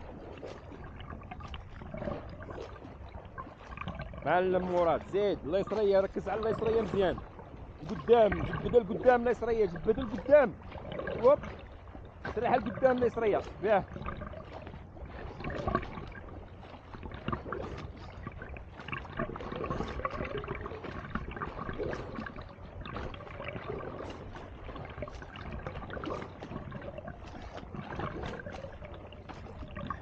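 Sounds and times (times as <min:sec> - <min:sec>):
water splashing and sloshing: 0:00.0 - 0:30.0.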